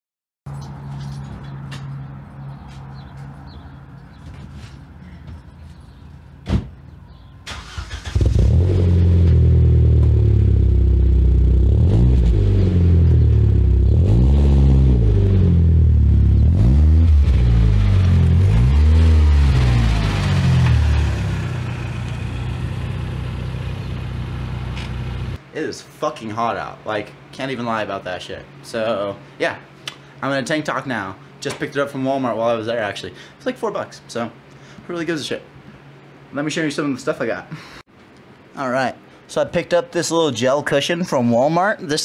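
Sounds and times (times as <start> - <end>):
car engine starting and revving: 7.5 - 25.4.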